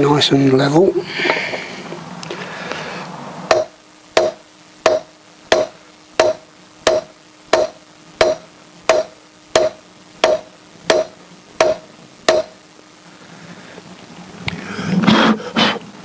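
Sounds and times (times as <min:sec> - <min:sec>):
hammer tapping metal: 0:03.5 - 0:12.6.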